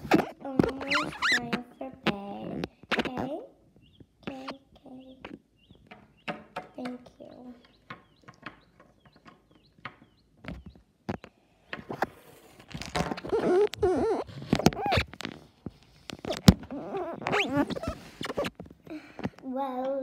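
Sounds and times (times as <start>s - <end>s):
voice making wordless sounds: 0.0s - 5.4s, 6.7s - 7.8s
plastic toys clicking and tapping: 5.3s - 16.7s.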